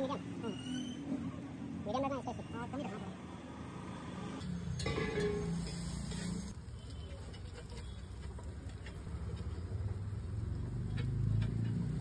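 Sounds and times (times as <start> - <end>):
metal spatula scraping on griddle: 4.6 - 6.6.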